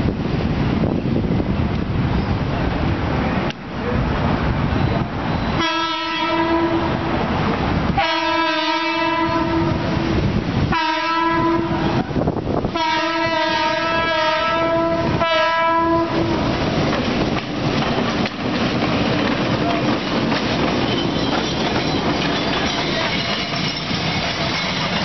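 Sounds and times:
train rumbling: 0.0 - 25.0
locomotive air horn blasts: 5.5 - 7.0, 8.0 - 10.0, 10.7 - 12.0, 12.7 - 16.4.

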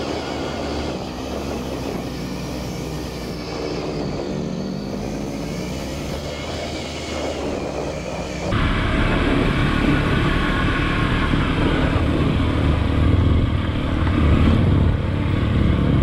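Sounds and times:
motorcycle engine running: 7.6 - 16.0.

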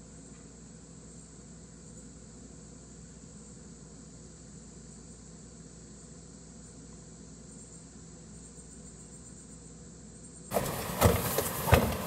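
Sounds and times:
low hum and hiss: 0.0 - 12.0
handling noise with knocks: 10.5 - 12.0.

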